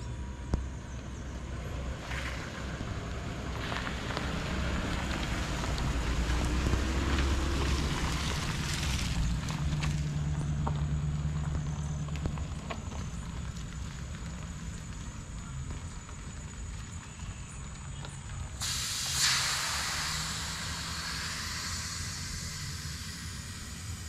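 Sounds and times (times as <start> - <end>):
car engine driving slowly past: 0.0 - 24.0
tyres rolling over grass and dirt: 0.2 - 24.0.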